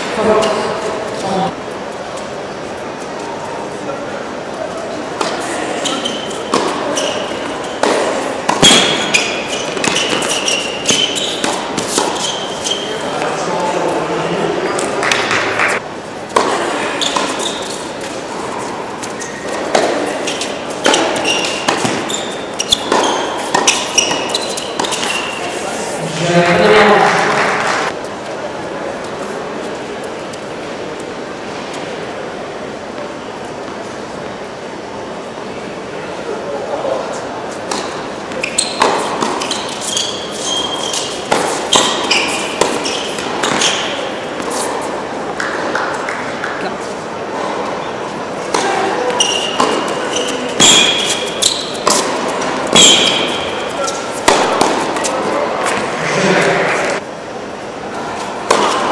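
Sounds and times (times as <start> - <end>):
shoe squeaks on hard court: 5.6 - 13.2, 16.9 - 18.0, 19.1 - 25.7, 37.7 - 44.7, 48.5 - 56.9
tennis ball hit by rackets: 6.4 - 12.2, 14.8 - 17.4, 19.5 - 25.2, 37.7 - 39.7, 40.9 - 44.8, 49.4 - 57.0, 58.4 - 58.9.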